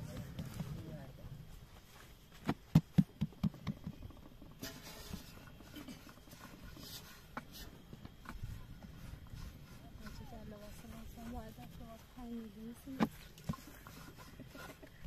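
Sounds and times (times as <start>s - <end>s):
faint background noise: 0.0s - 15.0s
dull thumps: 2.3s - 15.0s.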